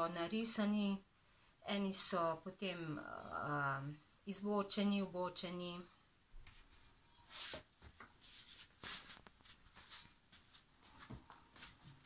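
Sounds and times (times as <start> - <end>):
person rustling and shuffling on carpet: 6.3 - 12.0.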